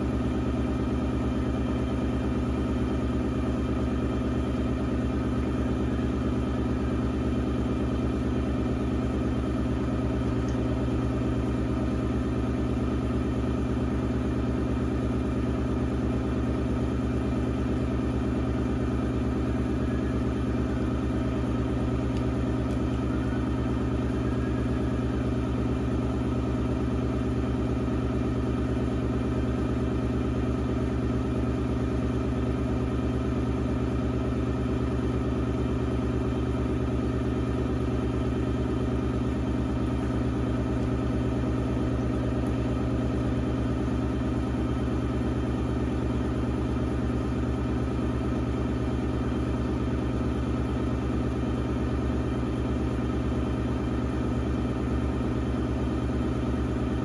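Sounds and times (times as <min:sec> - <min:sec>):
pottery wheel motor humming: 0:34.3 - 0:57.0.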